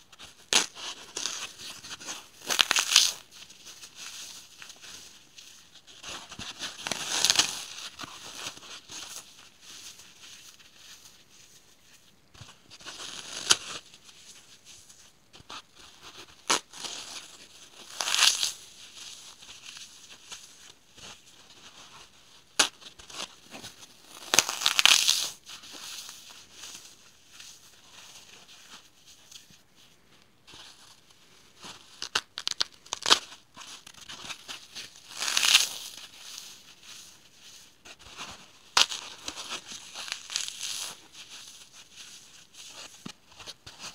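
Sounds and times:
floral foam crunching: 0.5 - 3.3, 24.0 - 25.3, 34.4 - 36.6.

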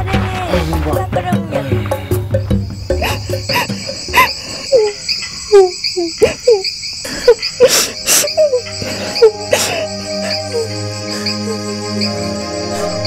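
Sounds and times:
crickets chirping: 0.0 - 13.0
woman sobbing: 3.0 - 11.8.

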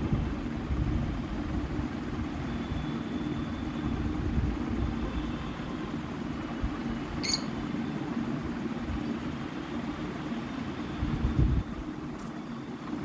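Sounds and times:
lovebird chirp: 7.2 - 7.5.

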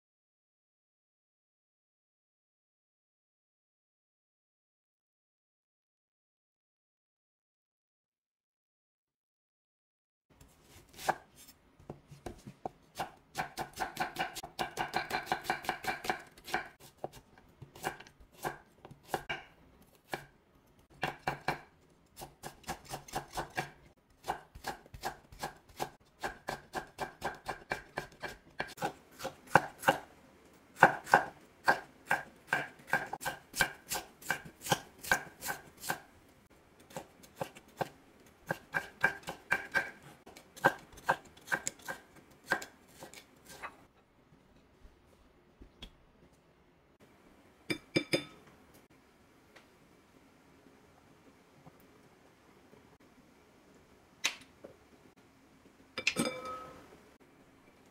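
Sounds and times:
knife chopping on wooden board: 11.9 - 19.5, 21.0 - 30.0, 30.8 - 36.0, 38.5 - 43.6.

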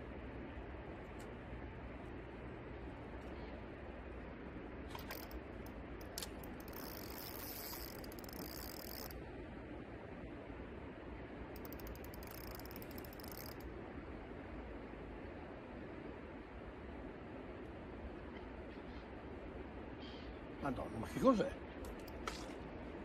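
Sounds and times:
fishing reel clicking: 5.0 - 9.2, 11.6 - 13.7.

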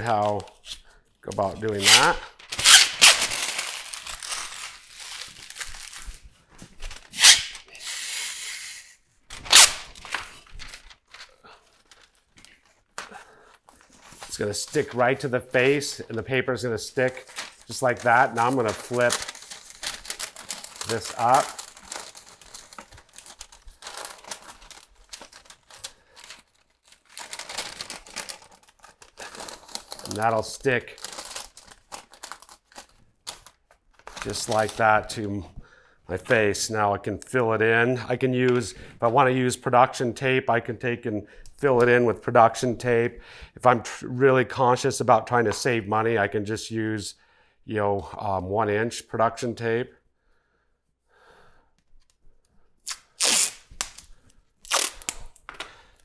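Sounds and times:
paper rustling and crinkling: 0.0 - 7.7, 9.3 - 13.0, 13.6 - 16.3, 16.9 - 35.2
paper ripping: 1.4 - 6.2, 6.9 - 11.3, 17.0 - 30.4, 52.9 - 54.0, 54.6 - 55.3.

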